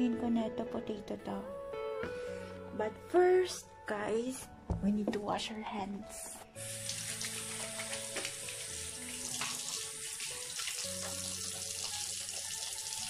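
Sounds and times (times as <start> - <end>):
hands washing under water: 6.6 - 13.0
tap water running: 6.6 - 13.0.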